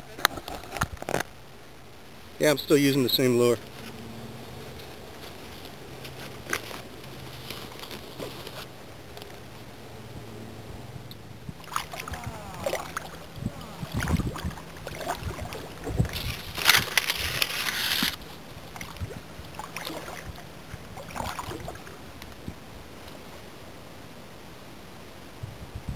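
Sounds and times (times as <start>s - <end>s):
hull scraping through brush: 3.0s - 8.8s, 11.6s - 20.3s
water sloshing and splashing: 11.5s - 22.4s.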